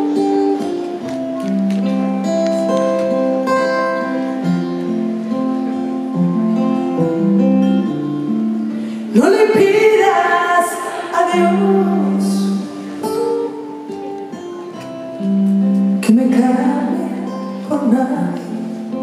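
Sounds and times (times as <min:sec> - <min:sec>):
acoustic guitar picking: 0:00.0 - 0:19.0
woman singing: 0:09.1 - 0:13.4, 0:16.0 - 0:19.0.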